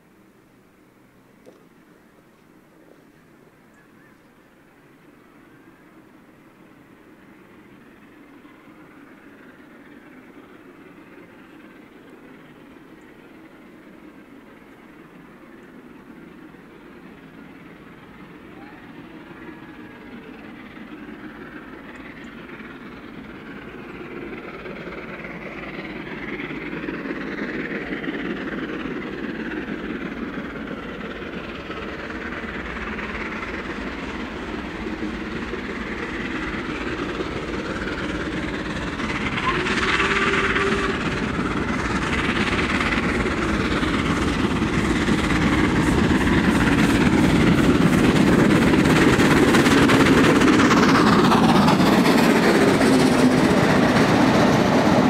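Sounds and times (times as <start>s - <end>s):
steam locomotive exhaust: 0.0s - 55.0s
wheels clattering on rails: 21.3s - 55.0s.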